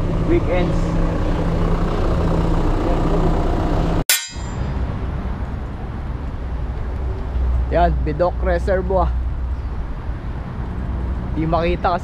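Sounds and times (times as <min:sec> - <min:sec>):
wind and road noise: 0:00.0 - 0:12.0
sharp metallic click: 0:04.1 - 0:04.8.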